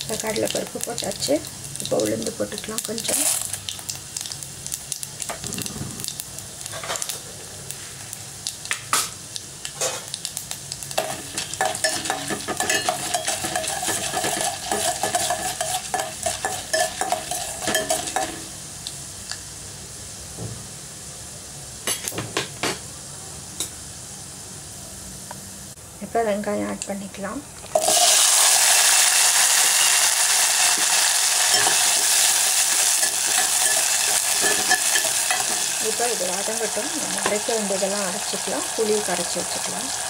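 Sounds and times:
seeds sizzling in hot oil: 0:00.0 - 0:22.0, 0:27.6 - 0:40.0
spoon scraping a metal pot: 0:11.0 - 0:18.5, 0:31.5 - 0:35.9.

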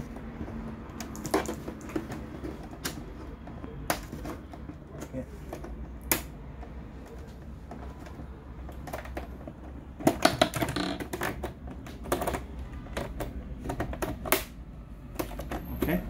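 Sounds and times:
plastic clips clicking loose: 0:10.0 - 0:16.0.

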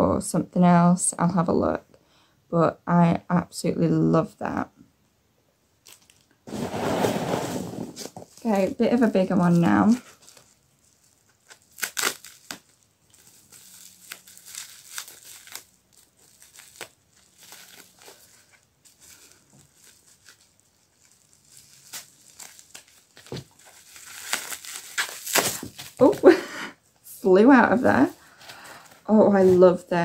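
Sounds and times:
bubble wrap crinkling: 0:05.8 - 0:26.4.

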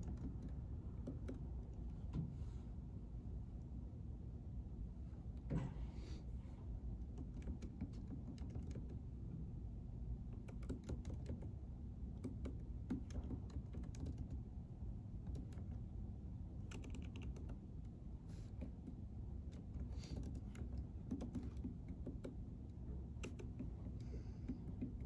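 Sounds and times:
low room hum: 0:00.0 - 0:25.0
keyboard key clicks: 0:10.4 - 0:11.5, 0:12.2 - 0:14.4, 0:16.6 - 0:17.6, 0:23.1 - 0:25.0.

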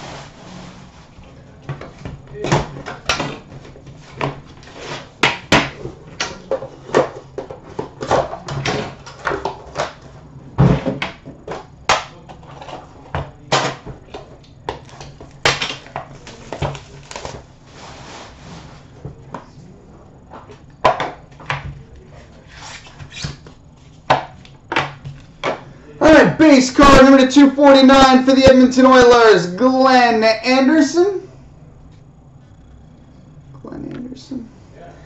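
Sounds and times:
wrapping crinkling: 0:16.2 - 0:18.4.

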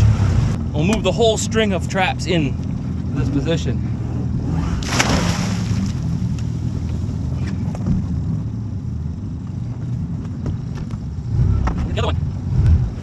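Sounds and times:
boat motor humming: 0:00.6 - 0:11.7.

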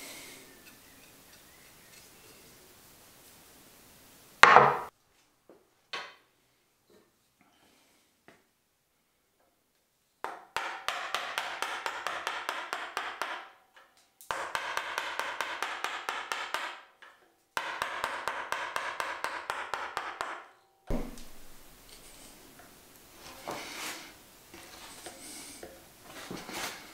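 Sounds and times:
mallet tapping chisel into wood: 0:04.4 - 0:04.9, 0:10.3 - 0:13.5, 0:14.3 - 0:16.8, 0:17.6 - 0:21.3
sharp knock: 0:04.4 - 0:04.9.

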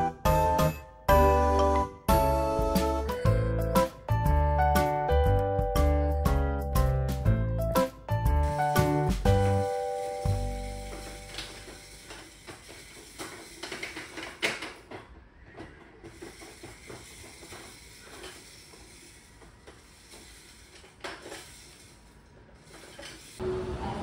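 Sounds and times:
small objects clicking and knocking: 0:08.5 - 0:23.4.

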